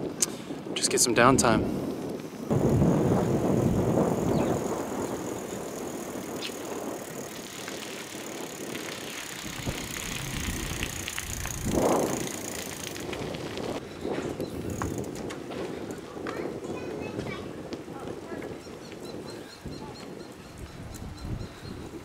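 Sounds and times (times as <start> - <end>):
bicycle tyres on road: 0.0 - 22.0
wind on microphone: 0.0 - 22.0
small rattles and clicks: 2.0 - 13.8.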